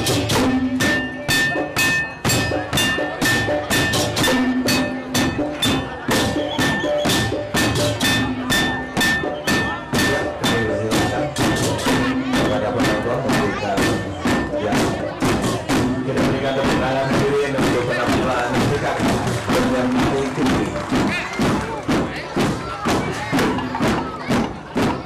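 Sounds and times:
bamboo tube drums beating: 0.0s - 25.0s
ringing gamelan tones: 0.2s - 13.1s.

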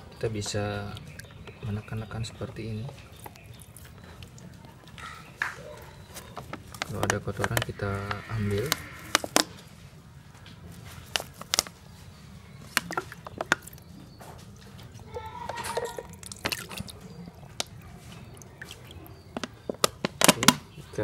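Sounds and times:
water sloshing in a bucket: 0.3s - 9.6s, 10.9s - 20.7s.

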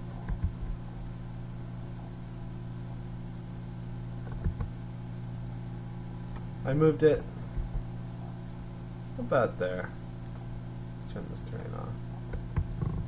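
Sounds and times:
steady low hum: 0.0s - 13.0s
soft clicks: 6.2s - 6.5s.

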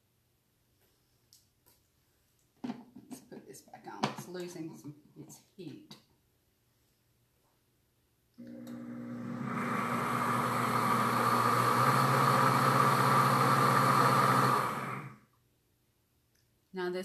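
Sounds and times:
blender motor running: 8.4s - 15.2s.

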